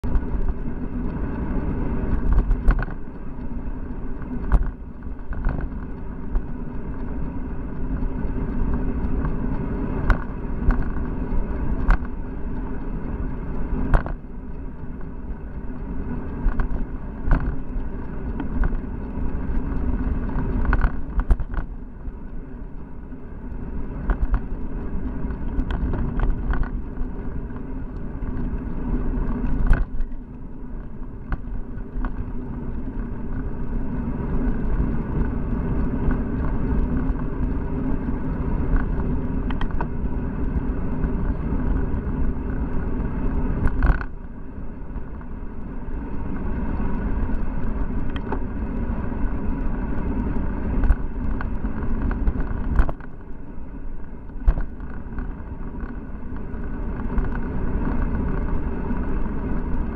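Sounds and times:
sharp clicks and knocks: 0:00.0 - 0:22.8, 0:23.5 - 0:33.8, 0:38.0 - 0:42.1, 0:43.6 - 0:44.3, 0:50.7 - 0:53.2, 0:54.2 - 0:58.6
wind and road noise rumble: 0:00.0 - 0:59.9.

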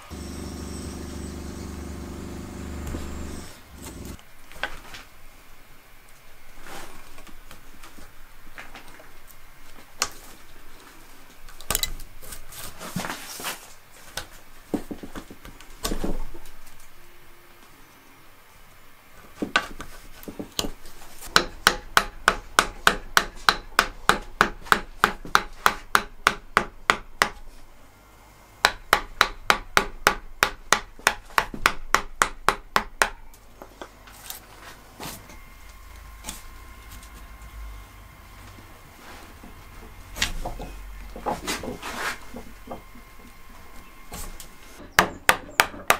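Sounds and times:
gouge scraping wood: 0:41.4 - 0:42.4.

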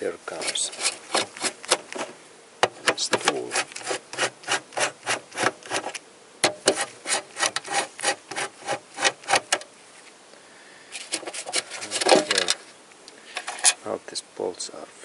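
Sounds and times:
bolts clicking and scraping: 0:00.3 - 0:04.3, 0:05.4 - 0:09.7, 0:11.0 - 0:12.7, 0:13.3 - 0:13.8.

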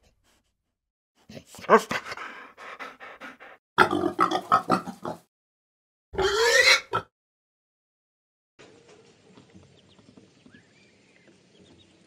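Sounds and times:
pigs grunting and oinking: 0:03.8 - 0:05.3, 0:06.2 - 0:07.1
pig squealing: 0:06.2 - 0:07.1.

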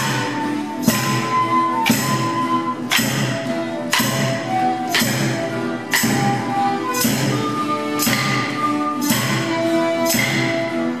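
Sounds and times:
wooden sticks clashing: 0:00.0 - 0:07.4.

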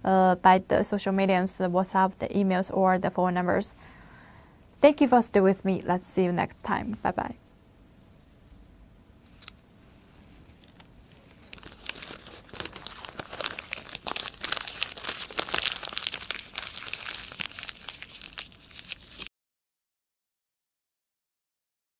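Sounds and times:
paper wrapping crinkling: 0:10.2 - 0:19.3.

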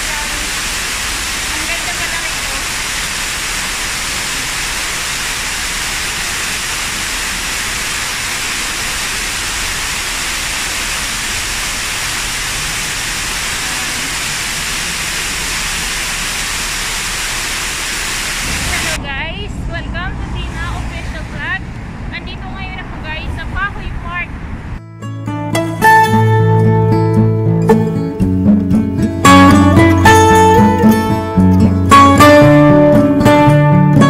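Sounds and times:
waterfall rushing: 0:00.0 - 0:19.2, 0:29.2 - 0:33.4.

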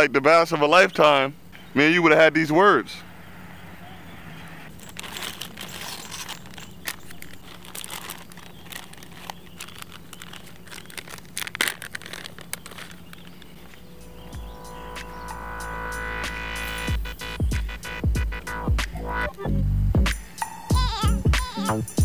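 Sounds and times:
plastic bags crinkling: 0:04.7 - 0:14.0.

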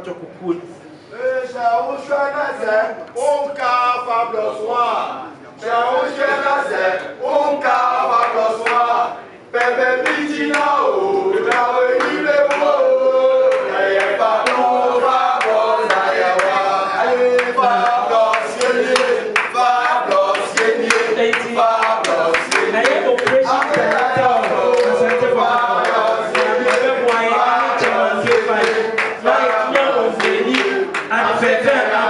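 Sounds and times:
crowd singing a chant: 0:05.6 - 0:32.0
hand clapping: 0:08.2 - 0:08.9, 0:09.6 - 0:12.8, 0:13.5 - 0:14.7, 0:15.4 - 0:16.7, 0:17.3 - 0:31.8.

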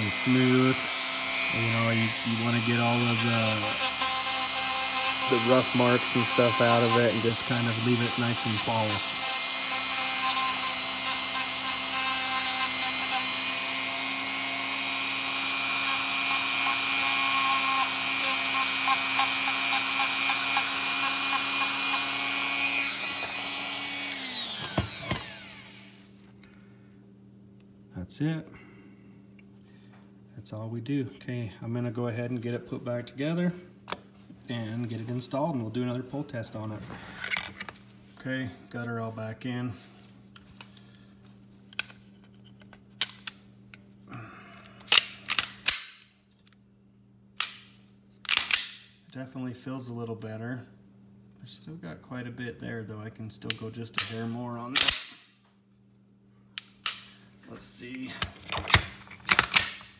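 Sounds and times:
rotary tool whining: 0:00.0 - 0:26.0.

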